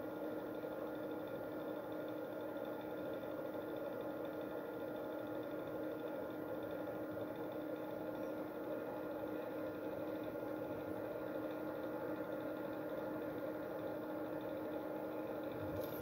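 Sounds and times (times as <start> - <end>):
electrical hum and hiss: 8.0 - 16.0.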